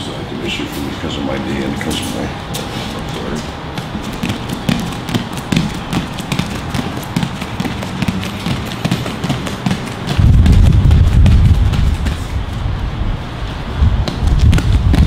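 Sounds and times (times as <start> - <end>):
barefoot footsteps on rubber mats: 1.9 - 15.0
loud low rumble: 10.2 - 15.0.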